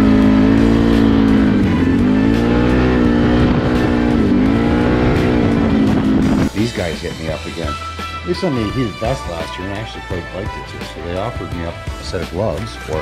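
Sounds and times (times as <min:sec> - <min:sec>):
atv engine running: 0:00.0 - 0:06.8.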